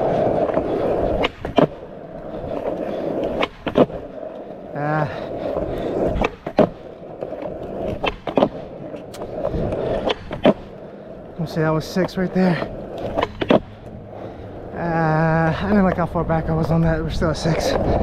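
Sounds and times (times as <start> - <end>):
skateboard clacks: 0.0 - 18.0
skateboard wheels rolling on pavement: 0.0 - 18.0
person exclaiming: 4.7 - 5.2, 14.8 - 16.0.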